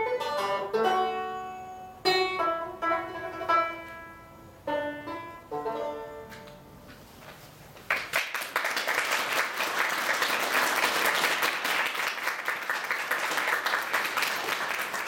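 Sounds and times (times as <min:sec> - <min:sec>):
audience applauding: 0:07.9 - 0:15.0.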